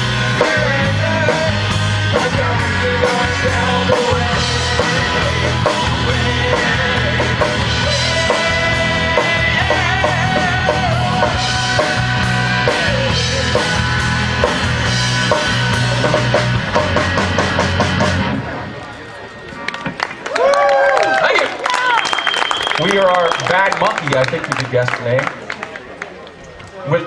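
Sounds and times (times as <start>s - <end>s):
rock band playing: 0.0s - 20.2s
electric guitar lead line: 0.0s - 20.3s.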